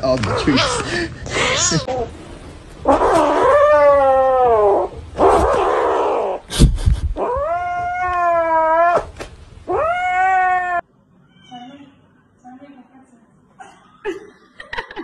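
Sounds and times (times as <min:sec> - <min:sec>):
kitten yowling: 0:02.9 - 0:06.4, 0:07.2 - 0:09.1, 0:09.7 - 0:11.6.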